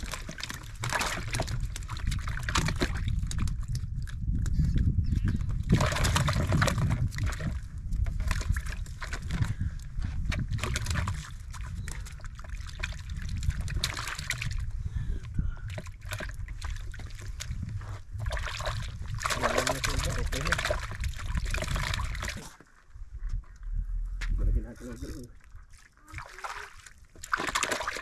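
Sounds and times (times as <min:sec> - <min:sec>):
water sloshing and trickling: 0:00.0 - 0:23.6, 0:24.3 - 0:28.0
steady low rumble: 0:22.8 - 0:24.8
clicks and rustles of fishing rig: 0:24.2 - 0:25.4.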